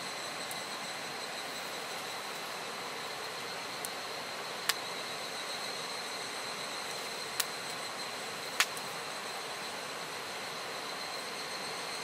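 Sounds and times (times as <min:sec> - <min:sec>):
high insect trill: 0:00.0 - 0:12.0
campfire crackling: 0:00.1 - 0:11.8
sharp pops of fire: 0:07.4 - 0:07.8, 0:08.5 - 0:08.9.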